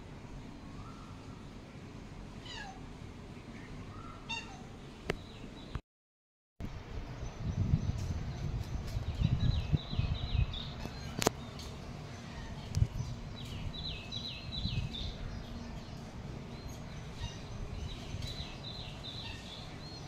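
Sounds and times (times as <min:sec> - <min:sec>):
steady low rumble: 0:06.6 - 0:19.9
small bird chirping: 0:07.2 - 0:20.0.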